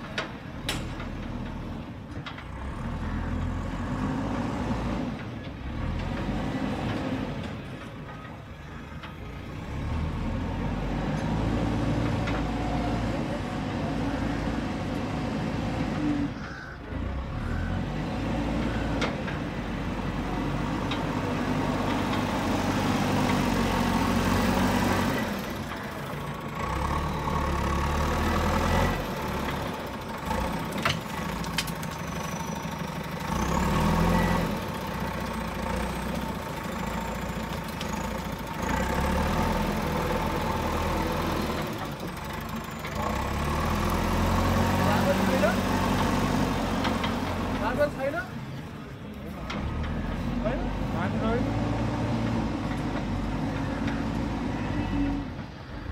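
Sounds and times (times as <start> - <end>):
diesel engine running under load: 0.0 - 55.9.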